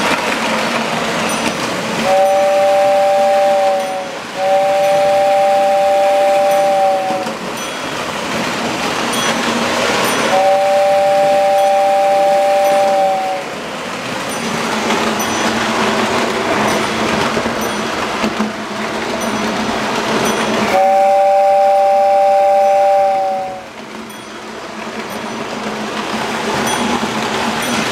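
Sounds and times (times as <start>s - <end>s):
toy train running on track: 0.0s - 27.9s
toy train whistle: 1.3s - 8.0s, 10.0s - 13.6s, 20.2s - 23.8s.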